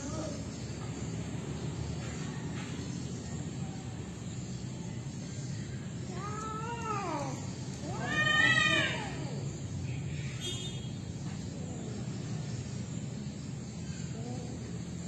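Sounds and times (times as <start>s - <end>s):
cat yowling: 6.2s - 9.4s.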